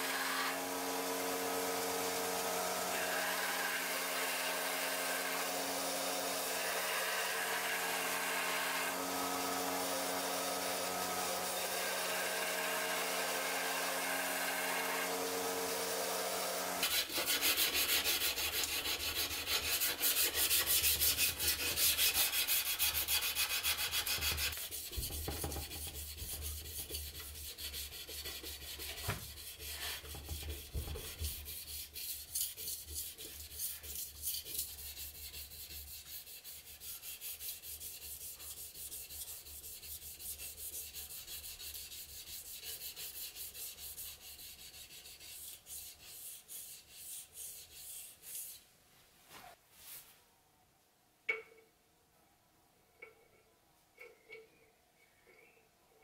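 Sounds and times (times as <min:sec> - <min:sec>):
sanding knife blade by hand: 0:16.8 - 0:48.6.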